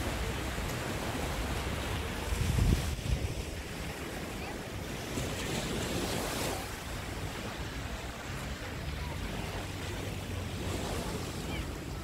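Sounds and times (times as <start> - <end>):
small waves breaking on beach: 0.0 - 12.0
wind rumbling on microphone: 0.0 - 12.0.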